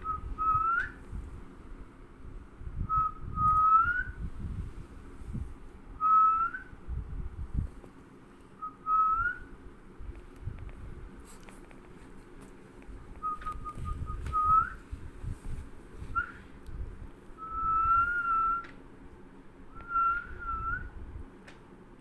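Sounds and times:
person whistling: 0.0 - 1.0, 13.2 - 14.8, 17.4 - 18.7, 19.8 - 20.9
rustling handling noise: 10.0 - 17.4.

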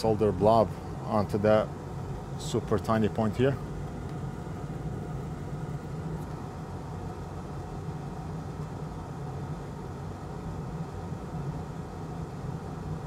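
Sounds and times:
low machine hum: 0.0 - 13.0.

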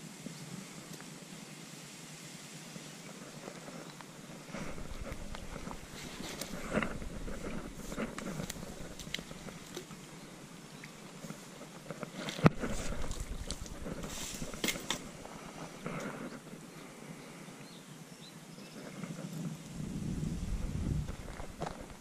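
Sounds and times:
fishing tackle clicks and rustles: 4.4 - 10.2, 11.1 - 16.5.

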